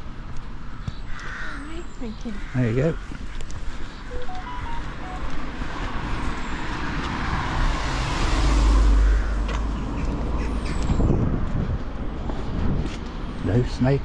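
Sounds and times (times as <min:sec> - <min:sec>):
vehicle driving past: 0:04.2 - 0:10.6.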